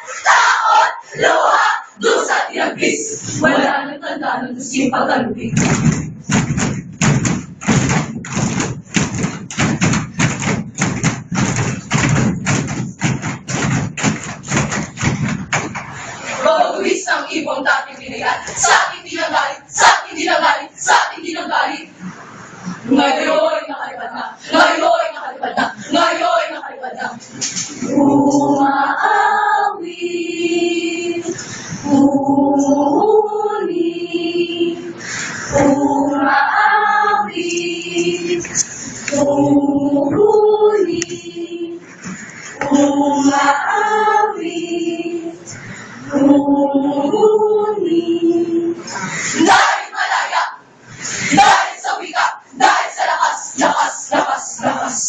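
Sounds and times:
choir singing long notes: 0:00.0 - 0:05.5, 0:16.3 - 0:22.1, 0:22.8 - 0:50.6, 0:51.2 - 0:55.0
people stamping and clapping: 0:05.5 - 0:16.1.

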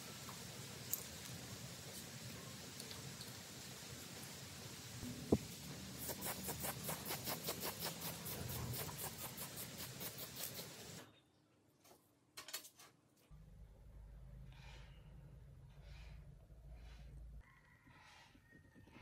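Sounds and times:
aerosol spray can hissing: 0:05.3 - 0:11.0
metal parts clicking on workbench: 0:12.4 - 0:13.0.

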